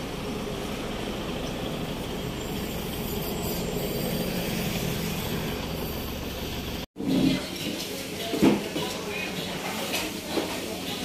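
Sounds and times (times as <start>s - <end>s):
outdoor background rumble: 0.0s - 6.9s.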